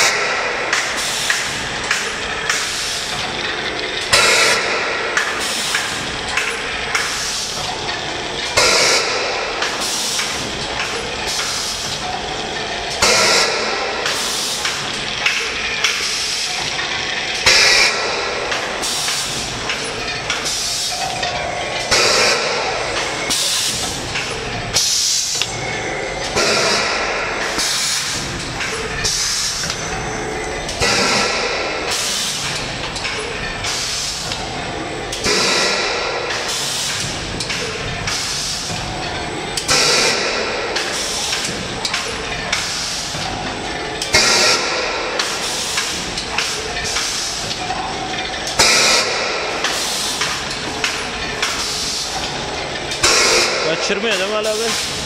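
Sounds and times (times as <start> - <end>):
steady mechanical clatter: 0.0 - 55.0
air hiss bursts: 42.6 - 43.2.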